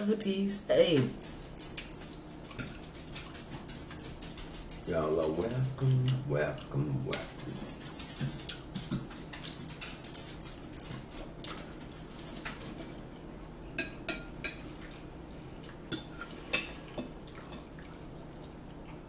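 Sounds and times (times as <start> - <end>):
forks clinking on plates: 1.0 - 12.9, 15.9 - 17.7.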